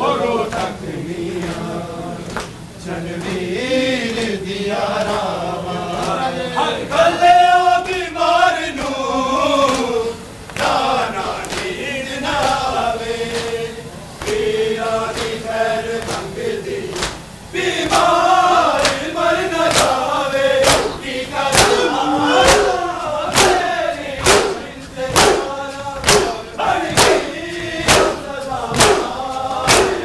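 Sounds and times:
men chanting: 0.0 - 30.0
hands slapping chests: 24.2 - 24.6, 25.2 - 26.4.

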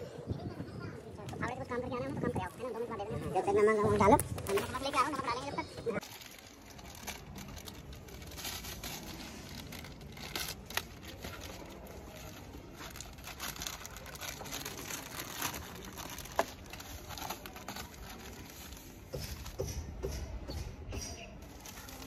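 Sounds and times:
plastic packet crinkling: 6.0 - 19.1.

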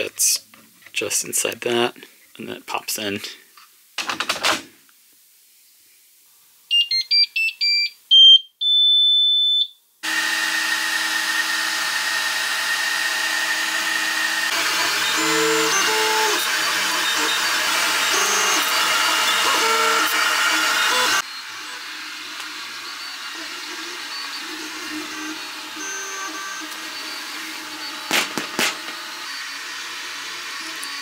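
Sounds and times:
printer buzzer beeps: 6.7 - 9.7, 14.8 - 21.5
fans whirring: 10.0 - 31.0
stepper motors whining: 10.0 - 31.0.

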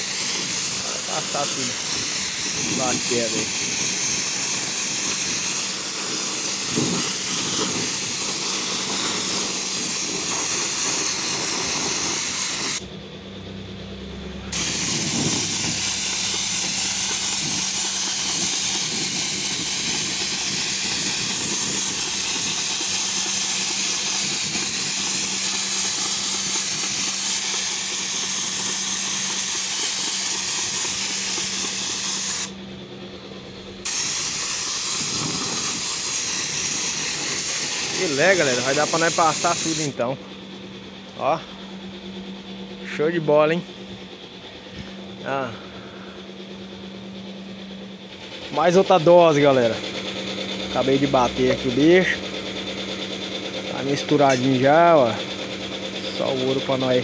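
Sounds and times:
spray gun hissing: 0.0 - 12.8, 14.5 - 32.6, 33.8 - 40.0.

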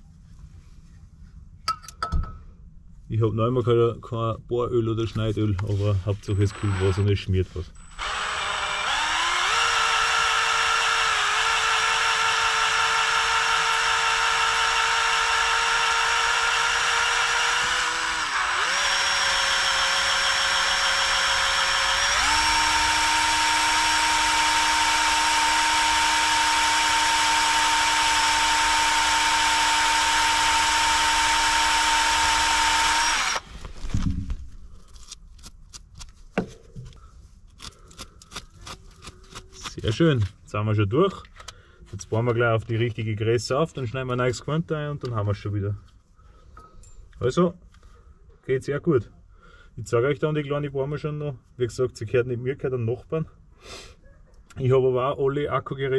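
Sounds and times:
electric drill running: 6.4 - 7.2, 7.8 - 33.7.

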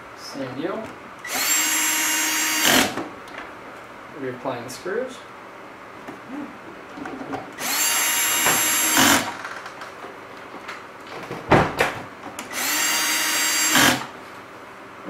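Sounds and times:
cordless drill driving screws: 1.2 - 3.0, 7.6 - 9.5, 12.4 - 14.1.

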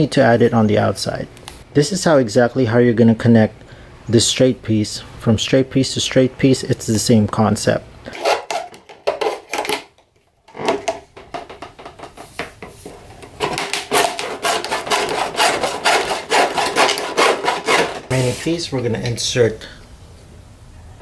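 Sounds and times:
hacksaw cutting plastic: 8.1 - 11.0, 12.8 - 18.1.

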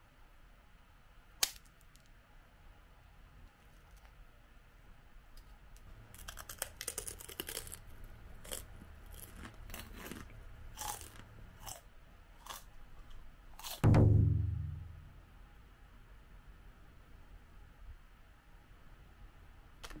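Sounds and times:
crunching rice crackers: 6.0 - 13.8.

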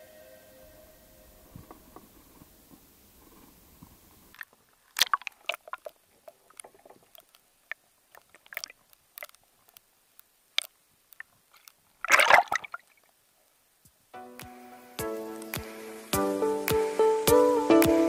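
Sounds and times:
water sloshing: 4.4 - 9.4, 10.6 - 13.1
fish splashing: 4.4 - 9.8, 10.5 - 13.1.

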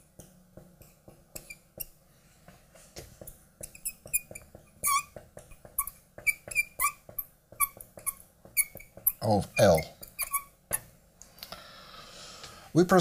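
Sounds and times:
marker squeaking on glass: 1.3 - 2.0, 3.6 - 10.9.

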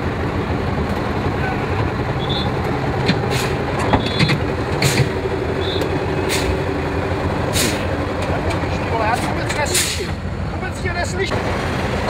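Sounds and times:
truck diesel engine rumbling: 0.0 - 12.0
short hisses: 3.3 - 3.6, 6.2 - 6.6, 7.5 - 7.9.

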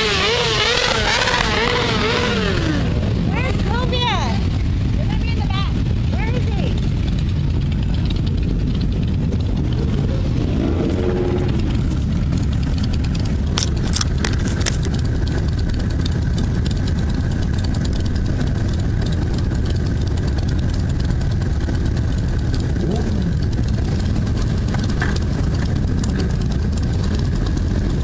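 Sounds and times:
motorcycles rumbling: 0.0 - 28.0
sharp clicks: 12.2 - 16.5.

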